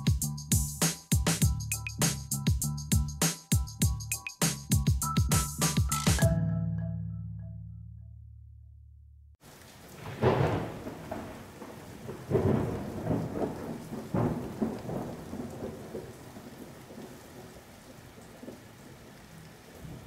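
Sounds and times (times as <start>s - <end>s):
rain hissing: 9.4s - 20.0s
thunder cracks and rumbles: 10.0s - 17.6s.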